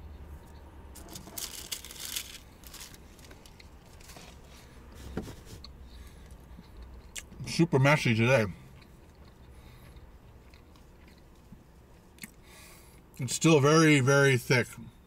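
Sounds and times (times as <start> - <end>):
paper rustling and crinkling: 1.0 - 5.6.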